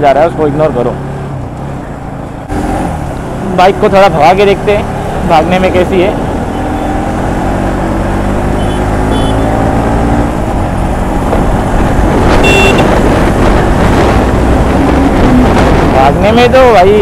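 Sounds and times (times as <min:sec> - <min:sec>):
motorcycle engine accelerating: 0:02.4 - 0:16.3
high beep: 0:12.4 - 0:12.8.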